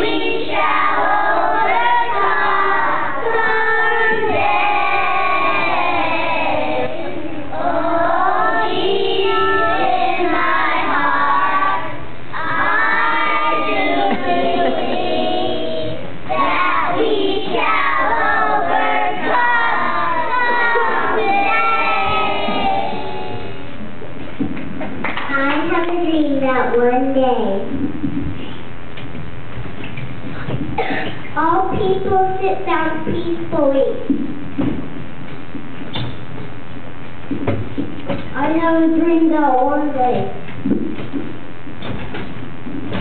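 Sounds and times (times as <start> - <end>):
children singing: 0.0 - 23.6.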